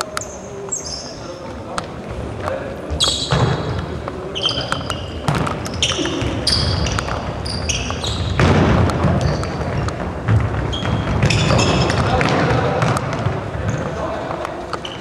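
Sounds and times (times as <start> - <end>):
shoes squeaking on wooden floor: 2.9 - 15.0
ball being kicked: 5.2 - 7.3, 8.1 - 13.8.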